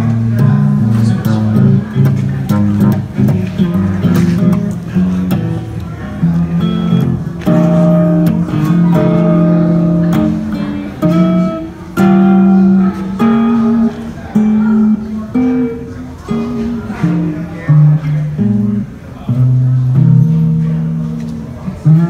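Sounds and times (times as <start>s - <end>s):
electric guitar single notes: 0.0s - 22.0s.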